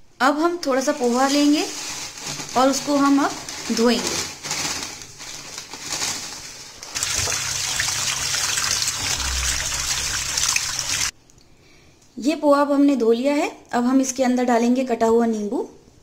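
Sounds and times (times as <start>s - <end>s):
dry flakes rustling into strainer: 0.9s - 11.1s
tap water running into strainer: 6.8s - 11.1s.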